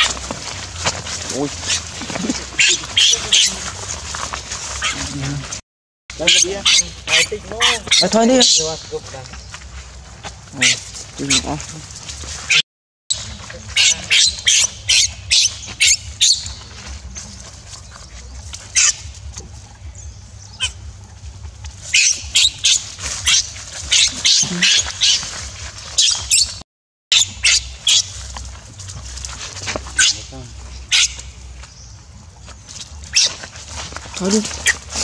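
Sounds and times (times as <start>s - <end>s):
baby monkey screaming: 1.4s - 3.8s, 4.8s - 5.2s, 6.2s - 8.9s, 10.5s - 11.7s, 12.4s - 16.7s, 18.2s - 19.2s, 20.5s - 20.9s, 21.8s - 28.3s, 29.8s - 31.4s, 33.1s - 35.0s.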